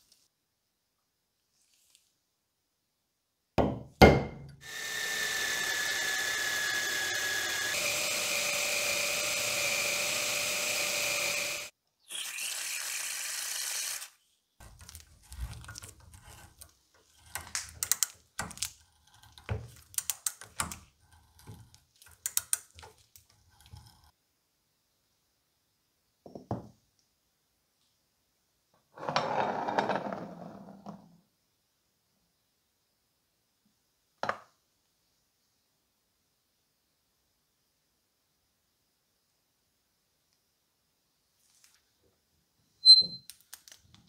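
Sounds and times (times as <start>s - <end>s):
power drill boring into metal: 4.6s - 14.2s
hand tap scraping and clicking: 21.4s - 23.4s.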